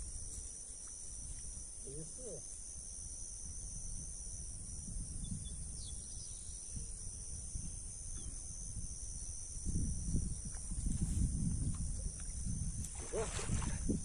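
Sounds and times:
crickets trilling: 0.0s - 14.0s
wind rumbling on microphone: 3.3s - 14.0s.

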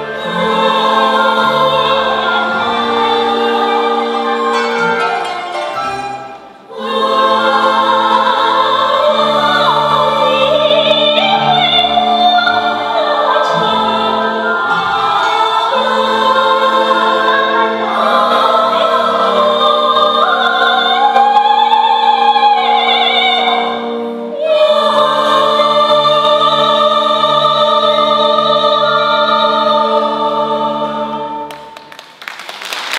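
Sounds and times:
women's choir singing: 0.0s - 32.0s
orchestra of strings: 0.0s - 32.1s
lead singer: 6.6s - 31.8s.

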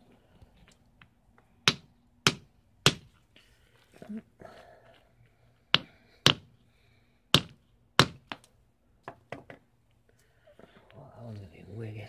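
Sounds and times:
hammer striking stone: 1.7s - 3.1s, 5.8s - 6.5s, 7.4s - 8.4s.

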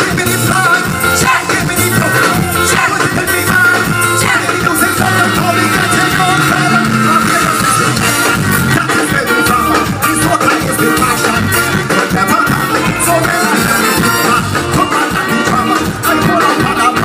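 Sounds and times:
live band playing soca: 0.0s - 17.0s
person singing: 0.0s - 17.0s.

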